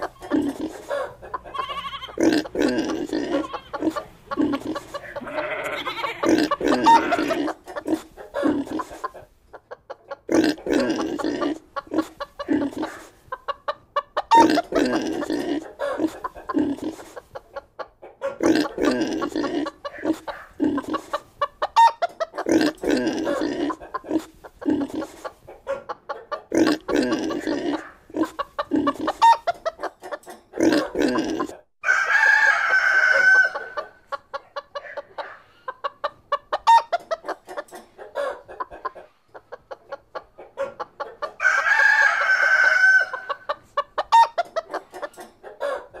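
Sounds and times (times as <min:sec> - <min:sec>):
chickens clucking: 0:00.0 - 0:46.0
rooster crowing: 0:31.8 - 0:33.8, 0:41.4 - 0:43.4.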